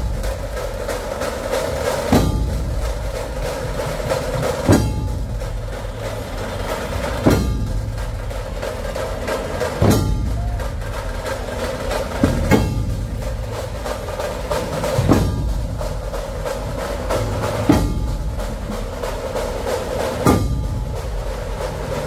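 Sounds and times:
fast drum rattle: 0.0 - 22.0
large drums beaten together: 0.0 - 22.0.

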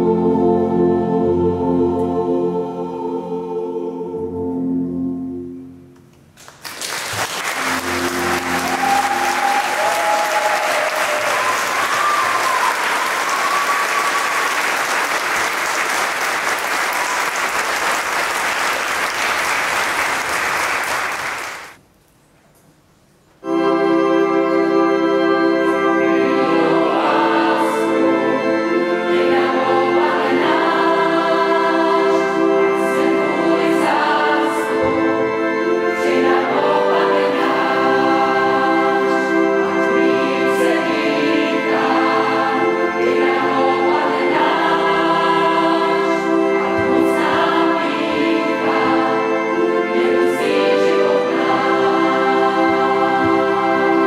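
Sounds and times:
choir singing: 0.0 - 5.7, 7.5 - 20.3, 23.4 - 54.0
organ chords: 0.0 - 6.4, 7.0 - 21.8, 23.4 - 54.0
audience applauding: 6.4 - 21.8.

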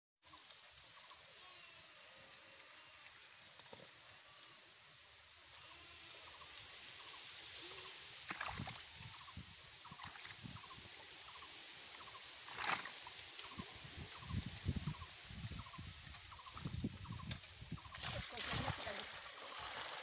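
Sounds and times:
stream water trickling: 5.0 - 20.0.

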